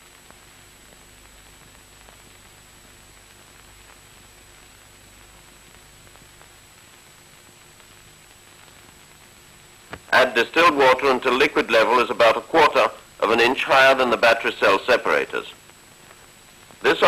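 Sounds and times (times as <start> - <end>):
faint crackles: 0.0 - 17.0
film soundtrack hiss: 0.0 - 17.0.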